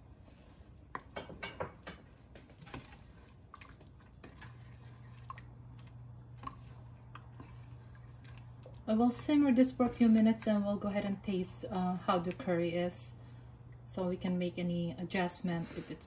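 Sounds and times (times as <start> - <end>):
wet sloshing of curry: 0.0 - 8.9.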